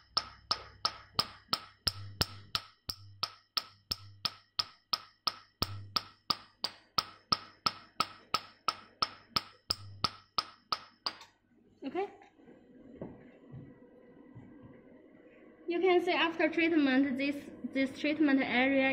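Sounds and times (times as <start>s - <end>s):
faint low hum: 11.1s - 18.9s.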